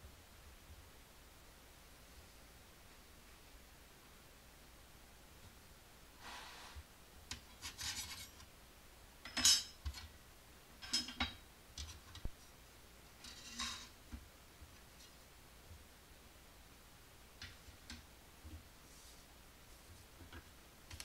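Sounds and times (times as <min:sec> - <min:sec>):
parts scraping on desk: 0:07.6 - 0:08.4.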